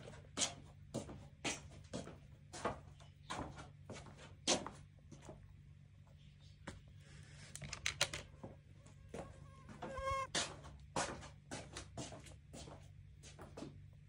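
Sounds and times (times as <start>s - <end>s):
steady low hum: 0.0s - 14.0s
brief squeaky tone: 9.8s - 10.3s.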